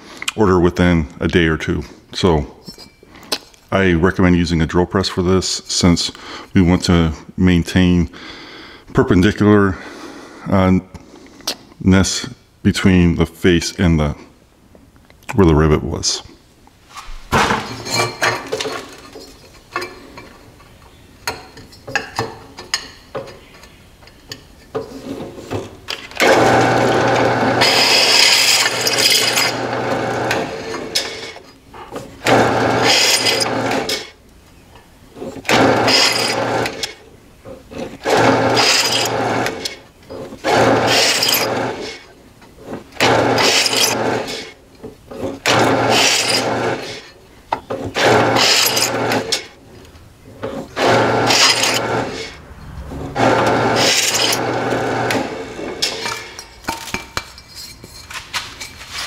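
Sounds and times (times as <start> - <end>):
drill press drilling metal: 25.9 - 31.4, 32.2 - 34.1, 35.2 - 37.0, 37.7 - 42.0, 43.0 - 44.5, 45.2 - 47.1, 47.8 - 49.5, 50.5 - 52.3, 53.2 - 56.4
motor hum: 50.5 - 55.9.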